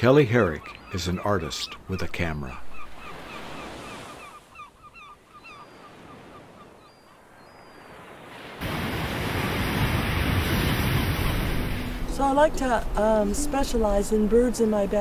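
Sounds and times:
flock of birds calling: 0.0 - 8.1
ocean surf: 0.0 - 15.0.

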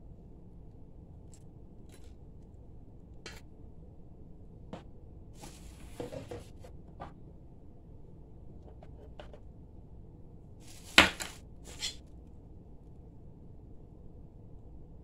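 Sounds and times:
plastic packaging rustling: 10.6 - 11.9.

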